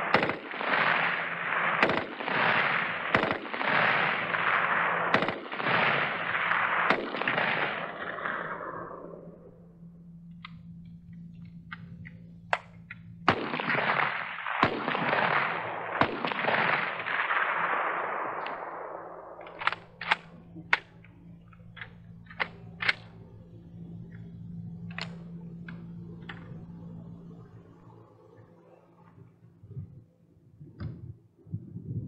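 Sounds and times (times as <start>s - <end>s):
rifle shots with rolling echo: 0.0s - 29.4s.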